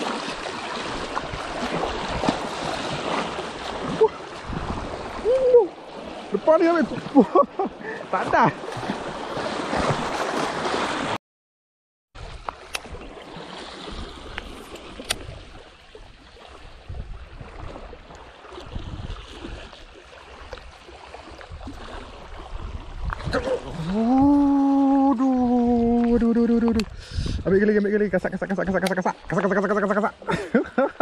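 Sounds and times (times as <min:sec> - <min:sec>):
lapping water: 0:00.0 - 0:10.9, 0:12.4 - 0:31.0
waves splashing against boulders: 0:00.0 - 0:11.2.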